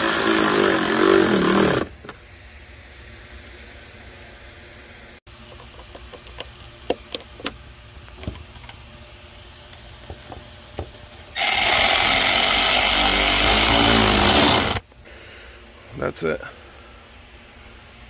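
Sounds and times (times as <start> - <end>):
cordless power tool running: 0.0 - 1.9, 11.4 - 14.8.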